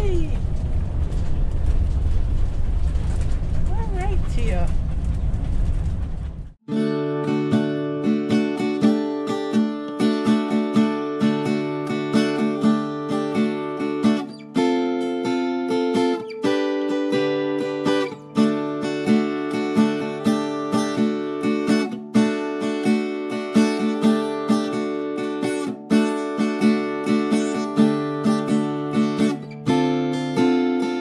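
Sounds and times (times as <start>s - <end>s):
acoustic guitar strumming: 6.7s - 31.0s.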